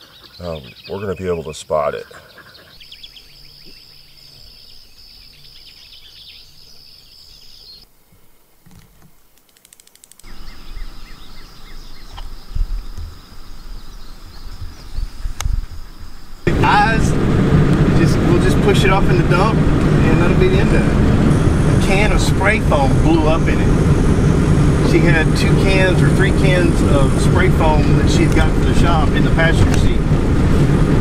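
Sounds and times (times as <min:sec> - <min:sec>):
bird chirps: 0:00.0 - 0:07.9, 0:10.1 - 0:16.5
insect buzz: 0:02.7 - 0:16.5
faint clicks: 0:09.3 - 0:10.3
low rumble: 0:16.4 - 0:31.0.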